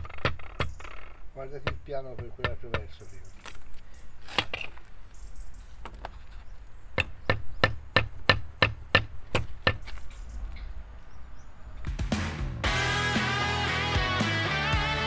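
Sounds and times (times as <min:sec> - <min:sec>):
concrete block tapping: 0:01.6 - 0:03.0.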